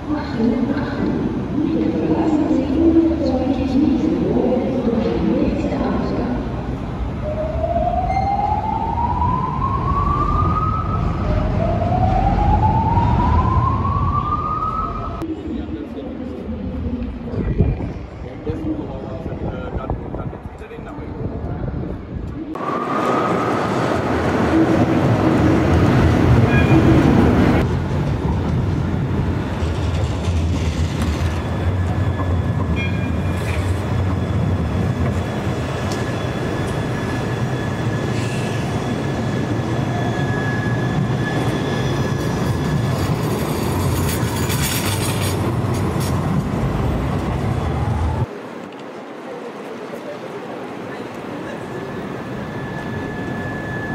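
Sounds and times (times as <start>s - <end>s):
tram wheels rumbling on rails: 16.2s - 53.9s.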